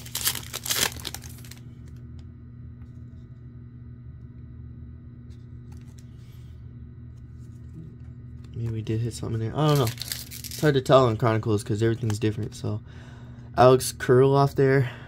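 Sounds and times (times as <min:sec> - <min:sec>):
wrapper crinkling and tearing: 0:00.0 - 0:01.6, 0:09.6 - 0:11.0.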